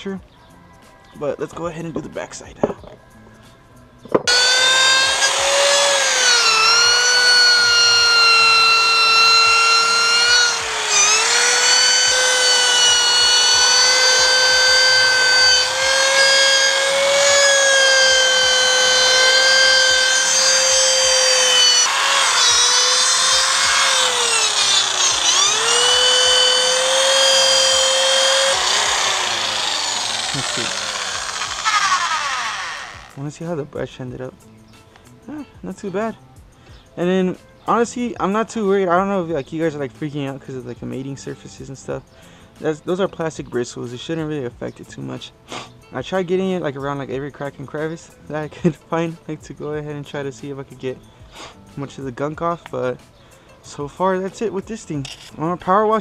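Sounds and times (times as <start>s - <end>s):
electric drill whining: 4.3s - 33.2s.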